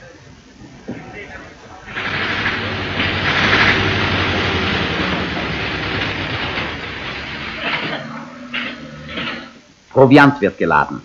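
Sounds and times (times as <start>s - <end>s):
low hum: 1.4s - 9.8s
mechanical clatter: 1.8s - 9.6s.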